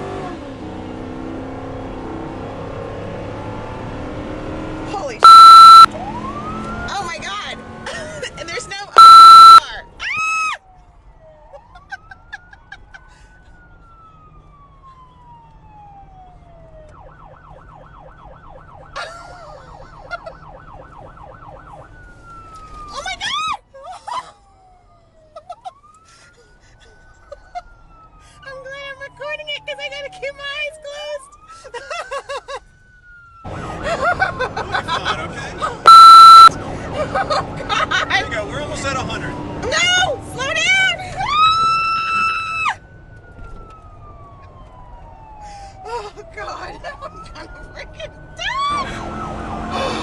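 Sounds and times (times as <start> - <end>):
road and engine noise: 0.0 - 50.0
police siren wailing and yelping: 5.0 - 50.0
loud steady electronic tone: 5.2 - 5.9, 9.0 - 9.6, 35.9 - 36.5.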